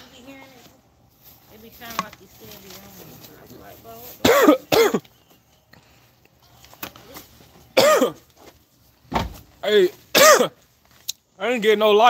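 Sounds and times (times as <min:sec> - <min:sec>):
man coughing: 0:04.2 - 0:05.1, 0:07.8 - 0:08.3, 0:10.1 - 0:10.6.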